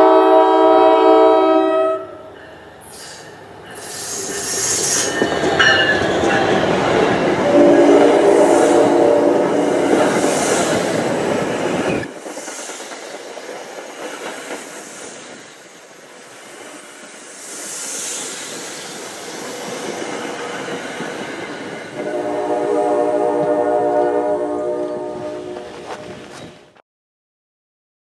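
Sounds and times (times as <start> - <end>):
train wheels rumbling on rails: 2.1 - 26.8
wheel squeals: 2.5 - 22.1.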